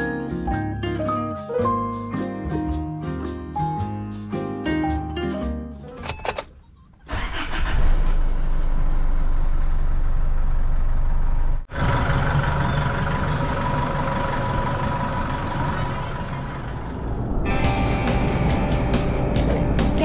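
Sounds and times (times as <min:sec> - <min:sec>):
truck engine idling: 0:08.4 - 0:20.0.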